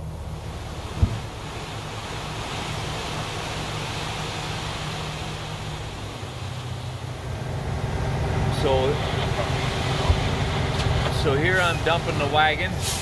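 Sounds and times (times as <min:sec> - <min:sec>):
diesel truck engine running: 0:00.0 - 0:13.0
rushing hiss: 0:08.2 - 0:13.0.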